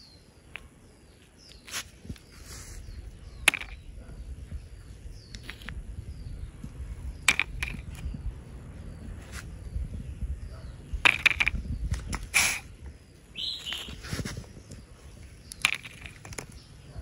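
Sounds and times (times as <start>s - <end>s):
faint bird chirps: 0.0s - 17.0s
toy figurines clicking on concrete: 2.8s - 8.4s, 10.4s - 12.7s, 14.7s - 16.9s
low steady rumble: 2.9s - 13.2s.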